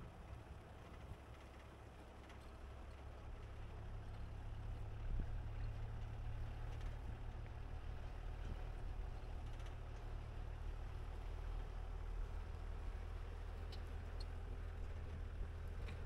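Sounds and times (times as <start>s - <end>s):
vehicle rumbling over rough dirt: 0.0s - 16.0s.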